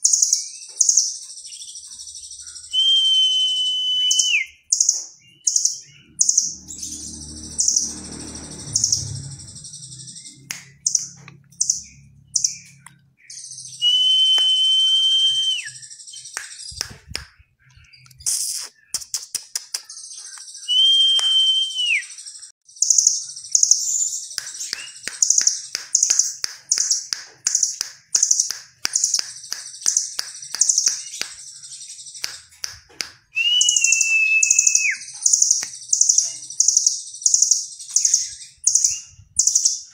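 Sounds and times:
short high bird chirps: 0.0s - 32.6s, 33.4s - 39.9s
long bird whistle: 2.4s - 4.8s, 13.3s - 16.8s, 20.5s - 22.5s, 33.3s - 37.4s.

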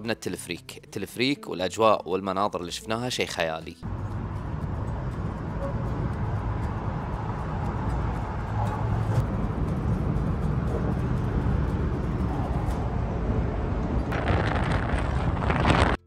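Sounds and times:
cable car gondola rumble: 3.8s - 16.0s.

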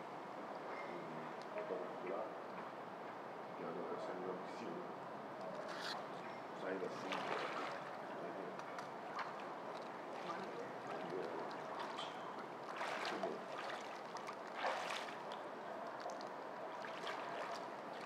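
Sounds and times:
pool water lapping: 5.0s - 18.0s
water splashes: 6.9s - 18.0s.

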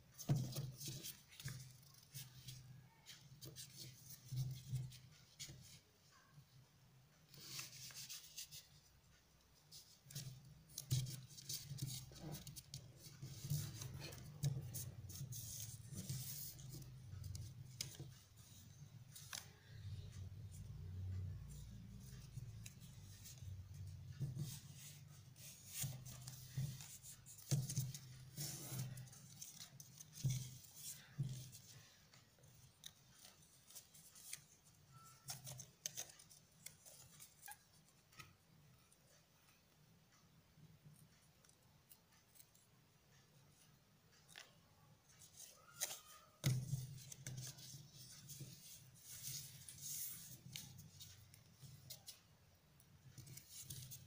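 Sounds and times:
paper rustling and crinkling: 24.1s - 38.3s, 45.1s - 52.2s, 53.1s - 54.0s.

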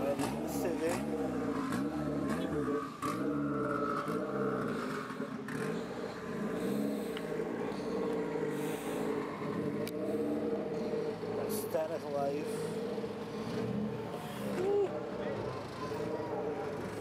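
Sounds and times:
car engine running at low speed: 0.0s - 17.0s.

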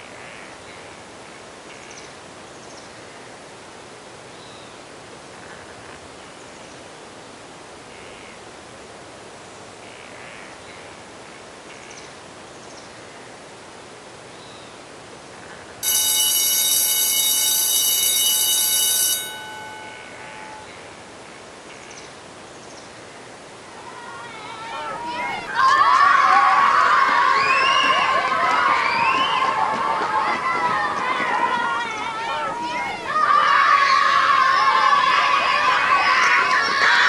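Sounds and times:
steady outdoor hiss: 0.0s - 37.0s
electric school bell ringing: 15.8s - 20.7s.

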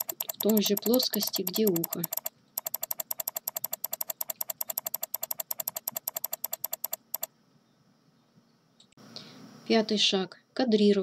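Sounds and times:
mouse button clicking rapidly: 0.0s - 7.3s.

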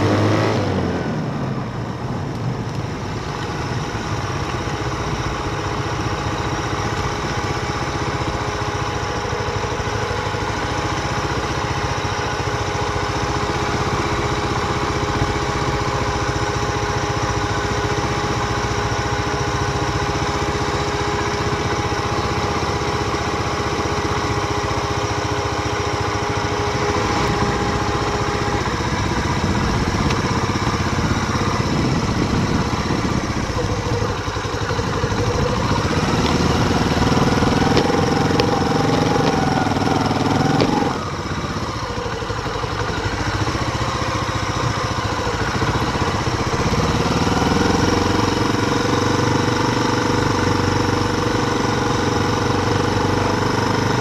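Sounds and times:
mountain bike tyres rumbling: 26.8s - 43.8s.

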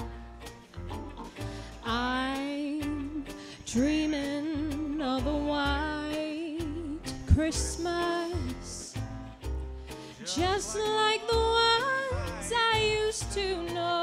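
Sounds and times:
backing track with steady beat: 0.0s - 14.0s
woman singing with vibrato: 1.8s - 9.0s, 10.3s - 14.0s.

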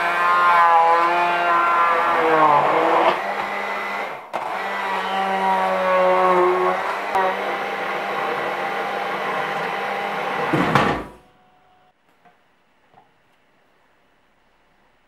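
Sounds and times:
stick blender running: 0.0s - 10.6s.

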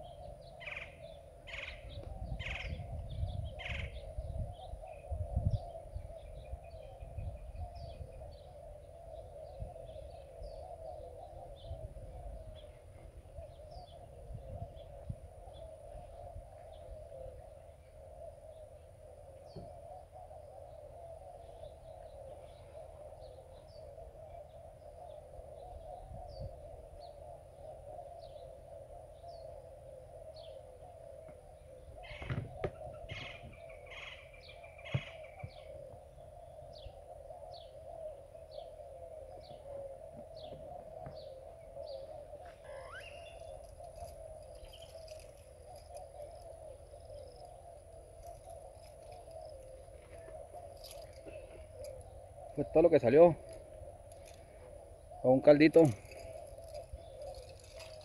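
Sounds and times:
bird high downward chirps: 40.4s - 47.5s.

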